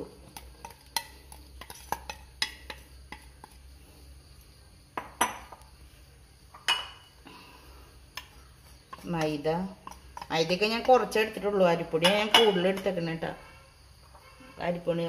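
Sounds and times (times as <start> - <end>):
spoon clinking on glass bowl: 6.6 - 7.1.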